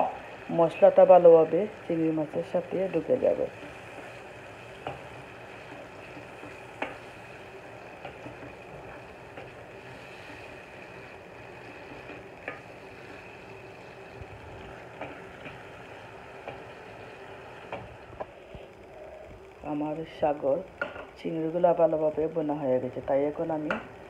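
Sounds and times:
prawns sizzling in wok: 0.0s - 18.4s.

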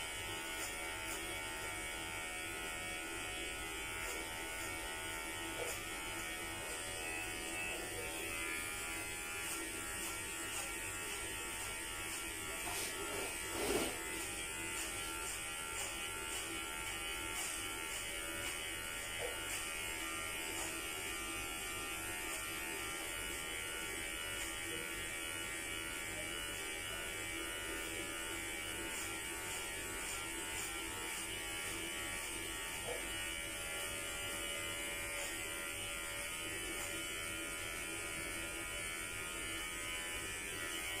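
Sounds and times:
electric hair clippers buzzing: 0.0s - 41.0s.

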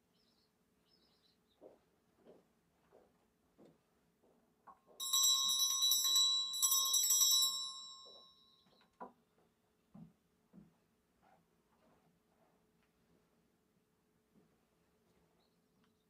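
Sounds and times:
handbell ringing: 5.0s - 8.6s.

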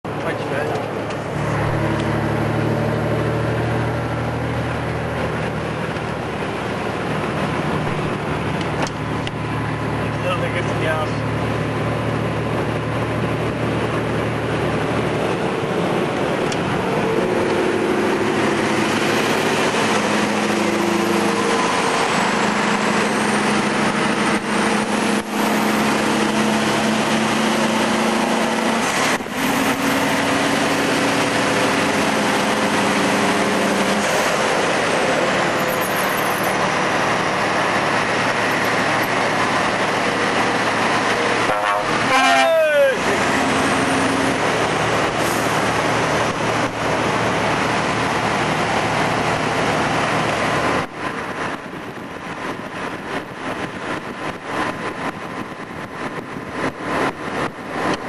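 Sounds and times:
truck engine drone: 0.0s - 58.0s
tyre and wind noise: 44.0s - 58.0s.

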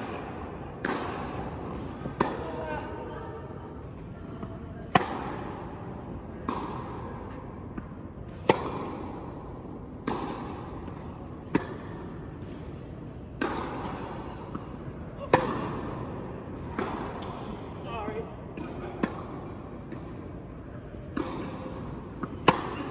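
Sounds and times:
tennis ball struck by rackets: 0.0s - 2.6s, 4.8s - 5.6s, 6.4s - 12.7s, 13.3s - 17.6s, 18.6s - 20.1s, 21.1s - 22.9s.

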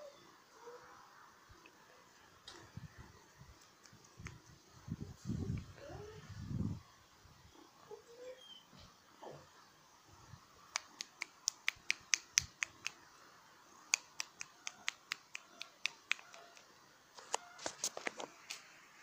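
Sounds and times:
rapid sharp clicks: 10.7s - 13.0s.

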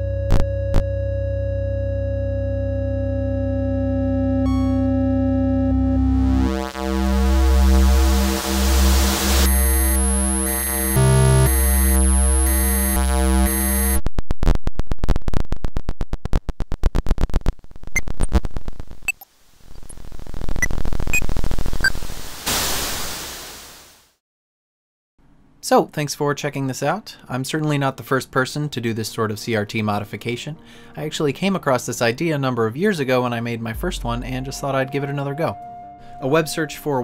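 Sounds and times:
low synth drone: 0.0s - 13.8s, 33.6s - 37.0s
steady synth tones: 0.3s - 14.0s, 33.5s - 37.0s
rapid electronic pulsing: 4.1s - 14.0s
electronic blips: 4.4s - 14.0s
hiss: 22.0s - 24.0s.

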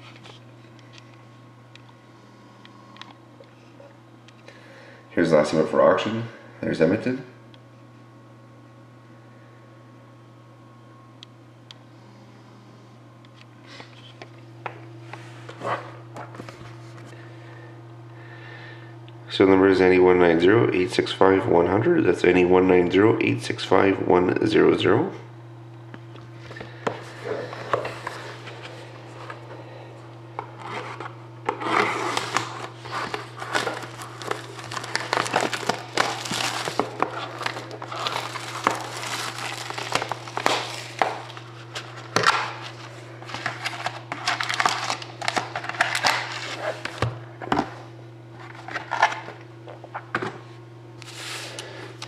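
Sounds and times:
low electrical hum: 0.0s - 52.0s
plastic wrap crinkling: 31.6s - 47.0s.

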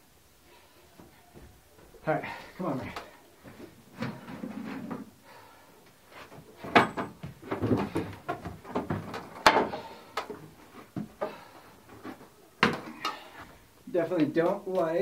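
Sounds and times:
wooden knocks and clatter: 6.3s - 13.2s.

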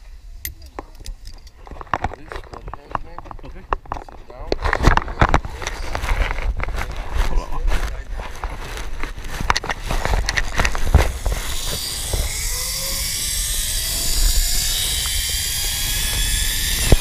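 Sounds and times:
wind buffeting microphone: 4.9s - 17.0s
pulleys whirring on cable: 10.3s - 17.0s.

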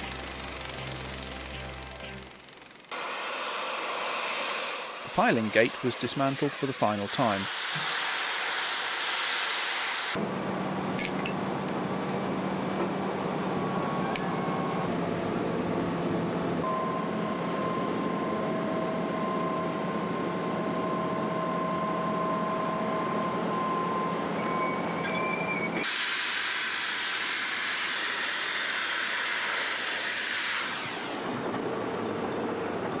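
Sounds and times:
cutting torch hissing: 0.0s - 10.2s, 25.8s - 31.5s
excavator engine and hydraulics whining: 0.0s - 33.0s.

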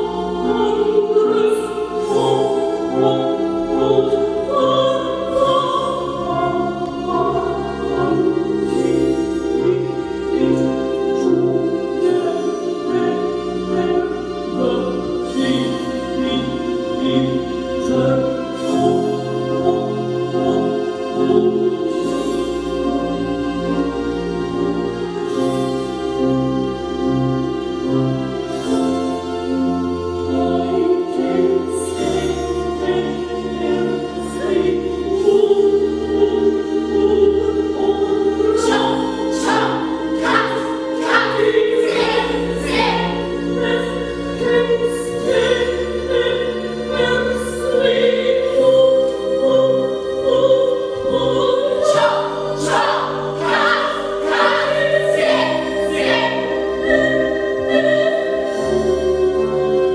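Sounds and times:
choir singing held notes: 30.4s - 59.2s.

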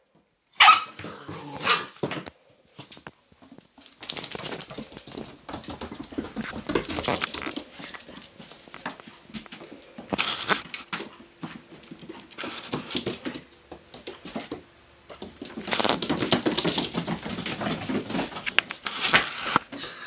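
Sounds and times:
puppy claws clicking on wooden floor: 3.8s - 11.1s.

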